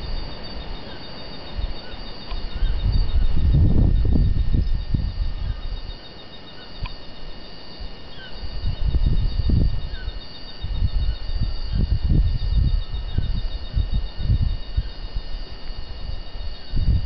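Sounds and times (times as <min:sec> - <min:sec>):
wind buffeting microphone: 0:00.0 - 0:06.0, 0:06.8 - 0:17.0
insects trilling: 0:00.0 - 0:17.0
bird chirps: 0:00.8 - 0:03.7.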